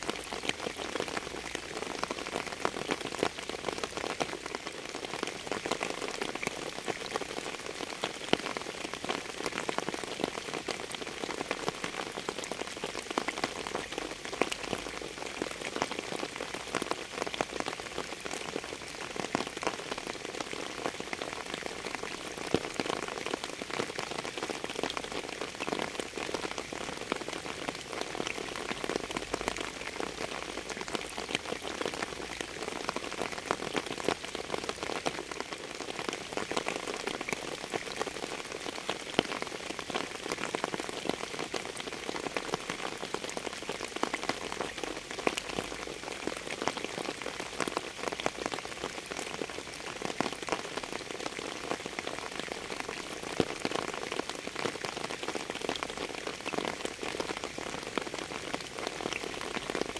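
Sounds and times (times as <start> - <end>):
steady rain falling: 0.0 - 59.9.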